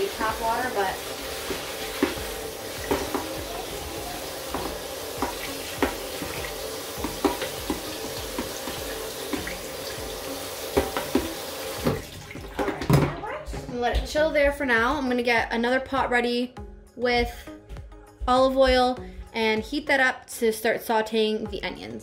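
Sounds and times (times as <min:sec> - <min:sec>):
tap running into metal sink: 0:01.4 - 0:13.1
colander knocks: 0:01.5 - 0:03.7, 0:04.4 - 0:09.7, 0:10.7 - 0:13.8.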